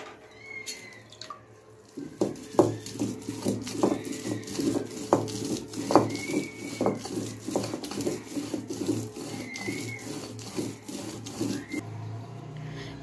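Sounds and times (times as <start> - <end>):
stone roller grinding on stone: 1.9 - 11.8.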